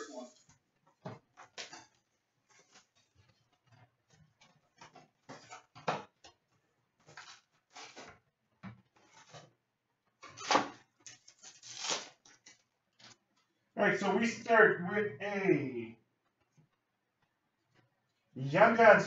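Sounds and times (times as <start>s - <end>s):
rustling cardboard and wrappers: 7.0s - 8.1s, 9.0s - 9.5s, 10.2s - 13.2s.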